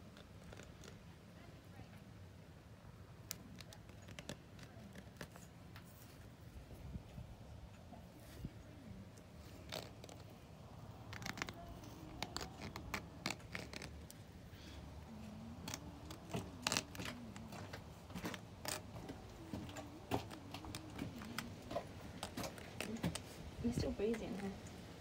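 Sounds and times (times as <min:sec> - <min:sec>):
faint clicks and scrapes: 0:00.0 - 0:01.1, 0:03.2 - 0:24.9.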